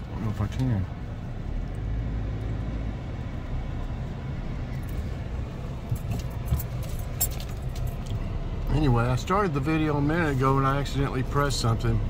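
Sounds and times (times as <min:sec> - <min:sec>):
car engine idling: 0:00.0 - 0:12.0
light clicks and rattles: 0:05.8 - 0:08.2.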